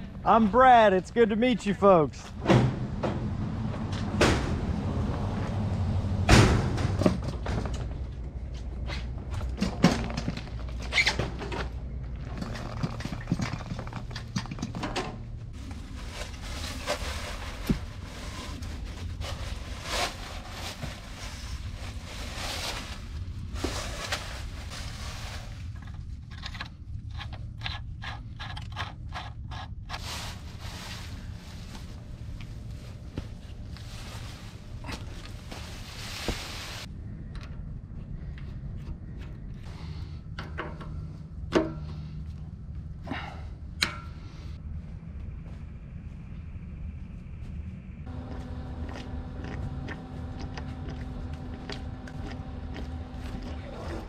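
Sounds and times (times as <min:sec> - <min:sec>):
low rumble: 0:02.1 - 0:28.4, 0:29.8 - 0:54.0
footsteps on leaves: 0:15.6 - 0:25.7, 0:30.0 - 0:36.9.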